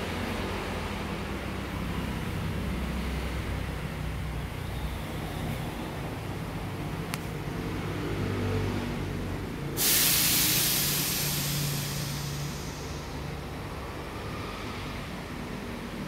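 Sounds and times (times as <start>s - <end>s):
loud hiss: 9.8s - 13.6s.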